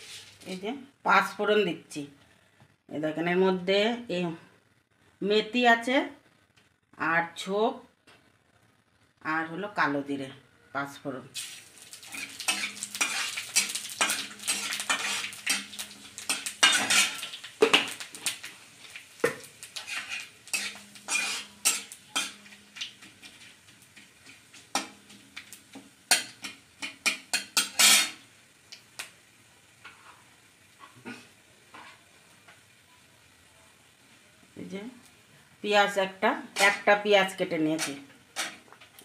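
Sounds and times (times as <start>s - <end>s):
metal spatula scraping metal pan: 0.0s - 0.5s, 12.0s - 18.0s, 19.2s - 25.1s, 26.1s - 28.2s, 36.5s - 36.9s, 37.7s - 38.7s
spices sizzling in oil: 0.0s - 2.0s, 11.3s - 39.0s.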